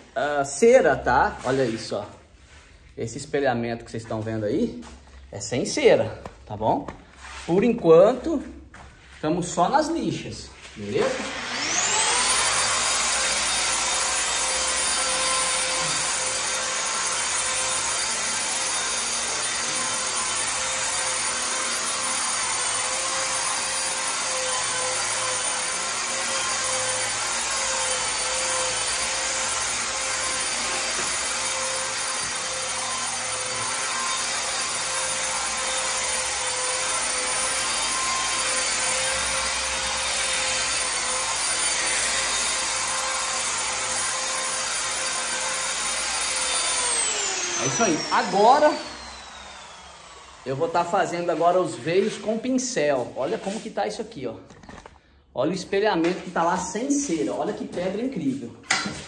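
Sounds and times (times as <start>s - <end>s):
sandpaper rubbing on wall: 1.2s - 2.9s, 7.0s - 11.2s, 51.2s - 54.0s.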